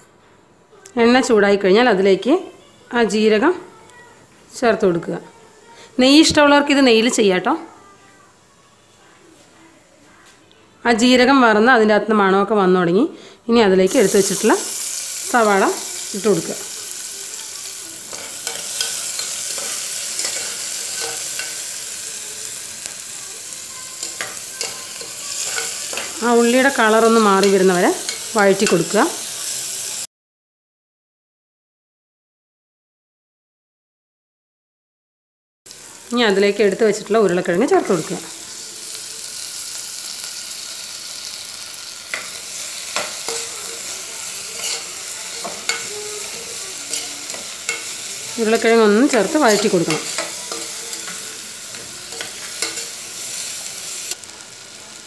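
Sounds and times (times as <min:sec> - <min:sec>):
onions sizzling in oil: 0:13.8 - 0:30.1, 0:35.7 - 0:55.0
spoon scraping metal pot: 0:44.6 - 0:45.9.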